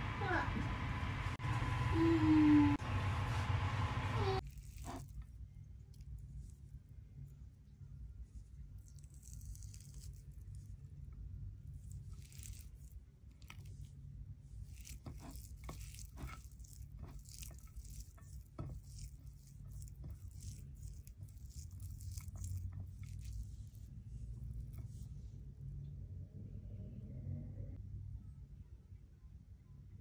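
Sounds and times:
low steady hum: 0.0 - 30.0
fingers mixing rice on plate: 14.6 - 25.0.

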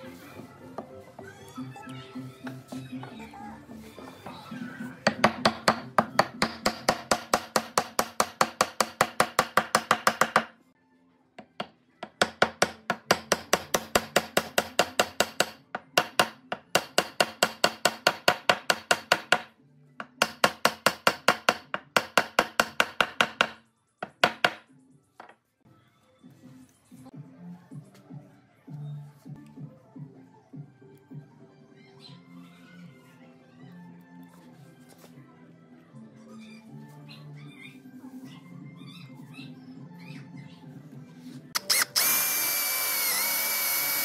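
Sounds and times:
wooden mallet knocking dowels: 5.1 - 10.5, 11.4 - 25.4.

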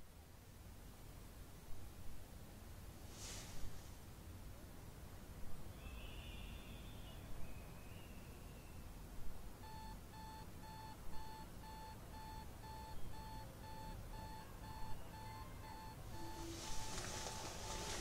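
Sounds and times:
alarm clock beeping: 9.6 - 18.0.

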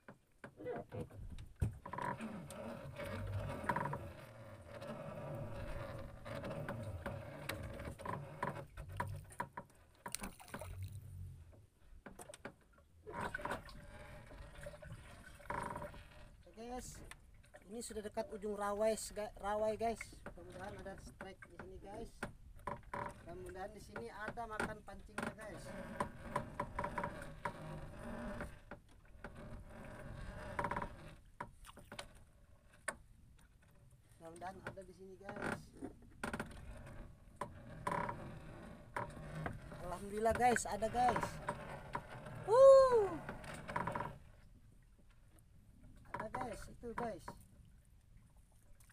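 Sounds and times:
knocks and ticks of line hauling: 0.0 - 14.5, 19.8 - 42.4
rattling creak: 0.0 - 45.2, 45.8 - 47.5
water lapping against boat hull: 0.0 - 48.9.

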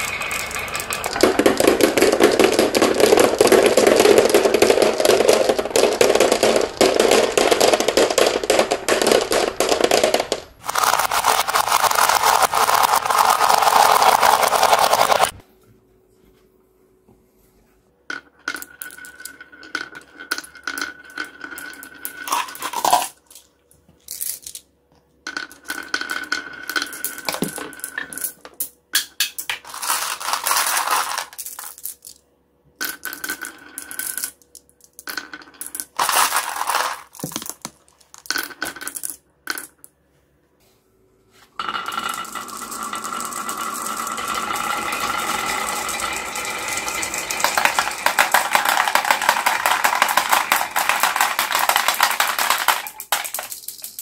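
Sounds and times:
marbles rattling down wooden chute: 0.0 - 15.4, 18.5 - 23.4, 25.3 - 28.4, 29.6 - 32.1, 35.0 - 39.7, 41.6 - 54.0
marbles rolling down wooden slope: 0.0 - 15.4, 18.1 - 23.2, 25.3 - 28.4, 29.6 - 32.1, 32.8 - 39.8, 41.6 - 54.0.

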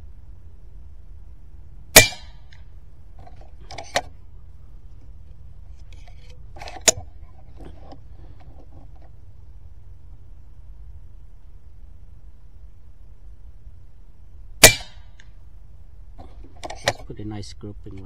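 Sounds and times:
air rifle shot: 1.9 - 2.6, 14.6 - 15.2.

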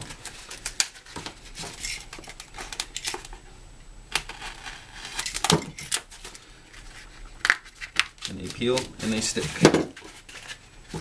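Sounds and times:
paper backing rustling: 4.3 - 11.0.

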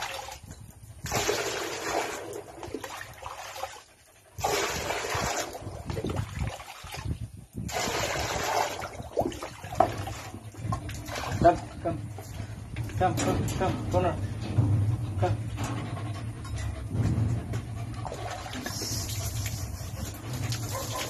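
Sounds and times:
water splashing: 1.1 - 13.0, 18.0 - 21.0.

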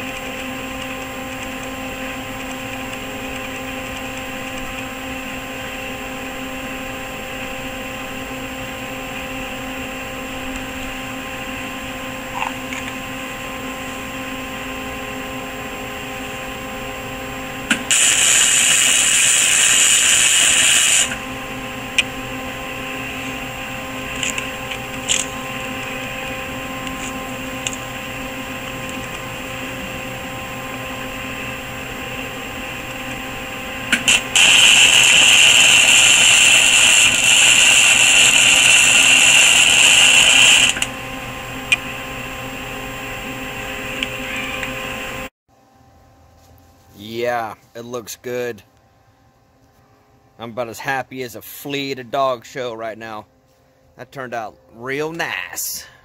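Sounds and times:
welding arc crackling: 0.0 - 7.5, 17.5 - 45.2
steady tonal hum: 0.0 - 56.0.

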